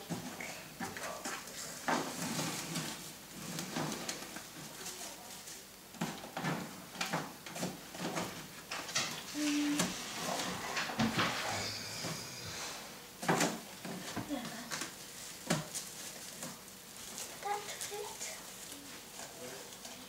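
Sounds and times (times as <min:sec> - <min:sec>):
plastic rustling: 0:00.0 - 0:11.4, 0:13.2 - 0:20.0.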